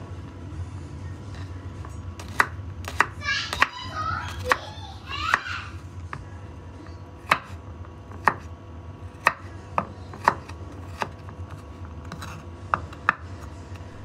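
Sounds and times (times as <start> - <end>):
knife chopping on wooden board: 2.2 - 3.7, 7.2 - 8.5, 9.2 - 13.2
faint low hum: 3.7 - 14.0.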